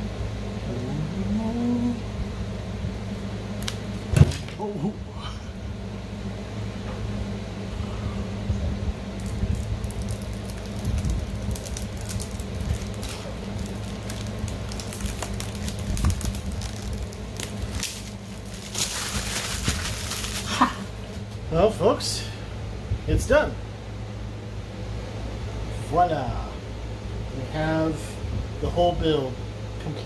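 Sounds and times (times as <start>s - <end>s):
low hum: 0.0s - 30.0s
clicks and crackles: 3.6s - 4.6s, 9.2s - 21.4s.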